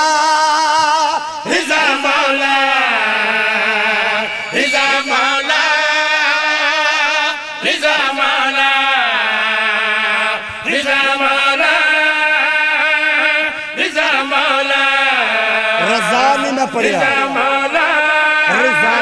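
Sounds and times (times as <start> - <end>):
men chanting held notes: 7.6 - 19.0.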